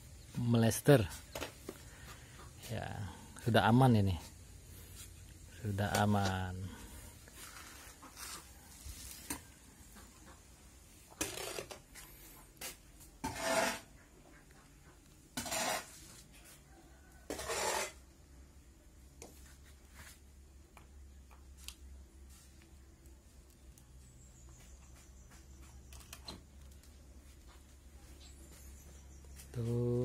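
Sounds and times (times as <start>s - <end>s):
hoe scraping through mortar: 11.2s - 11.8s, 13.2s - 14.0s, 15.4s - 16.2s, 17.3s - 18.0s
faint clicks and scuffs: 19.2s - 29.9s.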